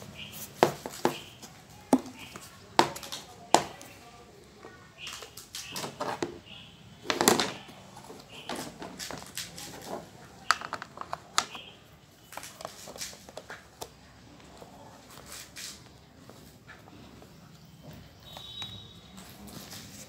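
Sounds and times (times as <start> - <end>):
plastic parts clicking and knocking: 7.1 - 11.7.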